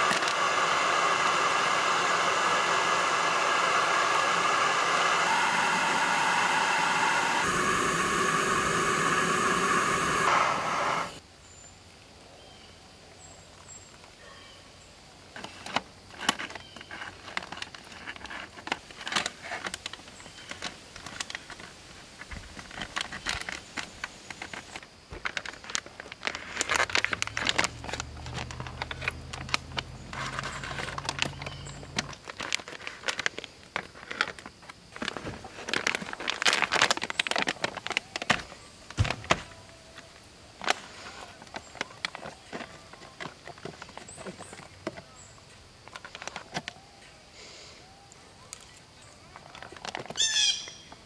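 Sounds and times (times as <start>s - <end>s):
foil pouch crinkling: 15.4s - 44.7s, 45.8s - 46.8s.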